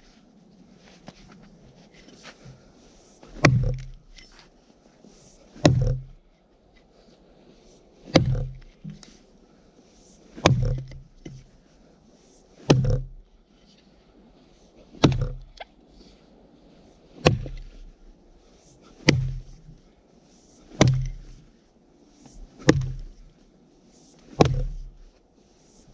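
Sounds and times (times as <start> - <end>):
axe chopping into tree trunk: 3.3 - 4.0, 5.6 - 6.2, 8.1 - 8.8, 10.4 - 11.4, 12.6 - 13.2, 15.0 - 15.6, 17.2 - 17.8, 19.0 - 19.6, 20.7 - 21.3, 22.6 - 23.2, 24.3 - 24.9.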